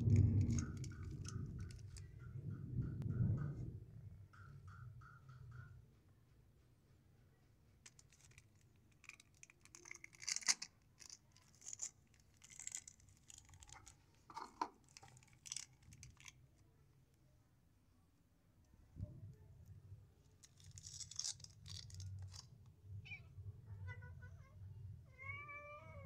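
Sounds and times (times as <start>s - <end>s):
plastic wrapper crinkling: 0.0s - 2.1s, 7.9s - 16.4s, 20.4s - 22.5s.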